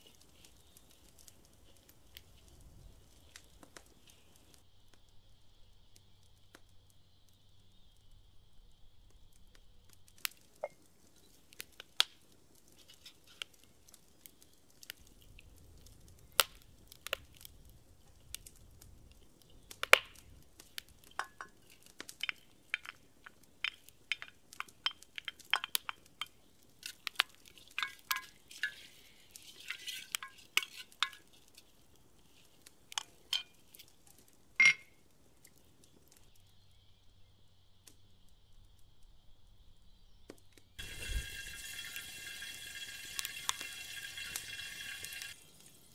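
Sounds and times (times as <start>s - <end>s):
wooden spoon clinking on ceramic: 27.6s - 29.0s, 29.7s - 31.3s, 34.6s - 34.9s
lid clinking onto pot: 34.6s - 34.9s.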